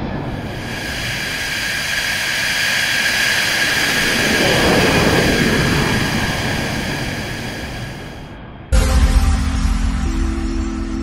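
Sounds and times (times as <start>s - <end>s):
jet engines passing by: 0.0s - 8.7s.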